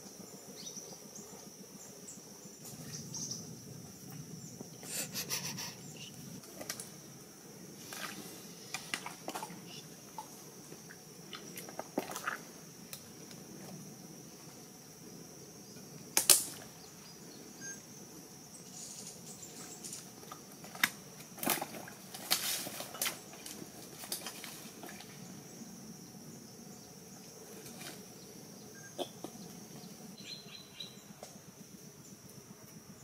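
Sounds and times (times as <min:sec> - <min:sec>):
high-pitched insect drone: 0:00.0 - 0:06.4
sharp snap: 0:16.2 - 0:16.6.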